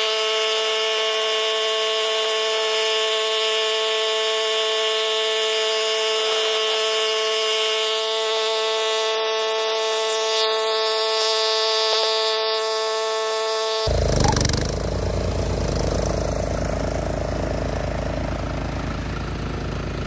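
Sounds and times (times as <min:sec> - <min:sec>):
lawn mower running: 0:00.0 - 0:20.0.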